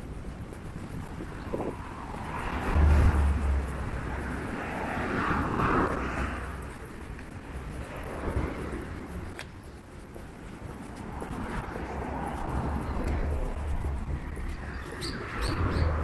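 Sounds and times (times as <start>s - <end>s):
vehicle passing by: 1.6s - 9.3s, 11.1s - 16.0s.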